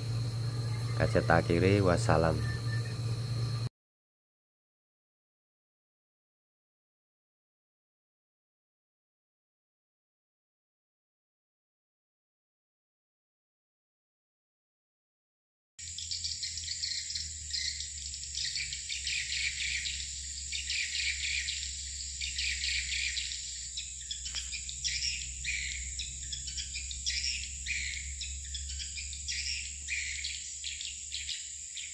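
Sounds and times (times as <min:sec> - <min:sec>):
steady high whine: 0:00.0 - 0:03.7, 0:15.8 - 0:31.9.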